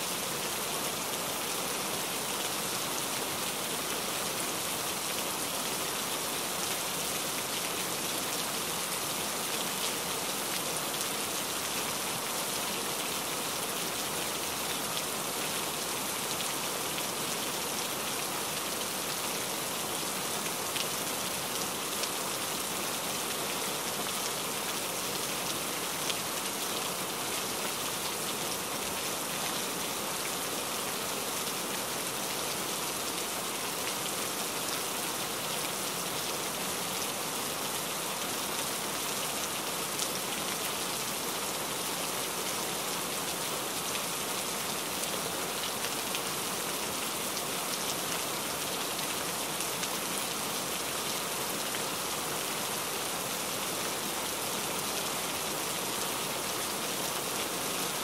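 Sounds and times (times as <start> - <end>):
steady rain falling: 0.0 - 58.0.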